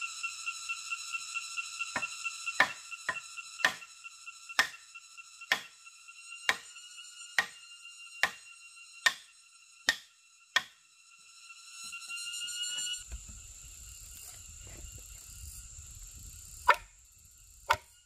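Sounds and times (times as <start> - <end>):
high-pitched ringing tone: 0.0 - 18.0
tool striking wood: 2.0 - 3.8, 4.6 - 4.8, 5.5 - 5.7, 7.4 - 7.6, 9.0 - 9.2, 17.7 - 17.9.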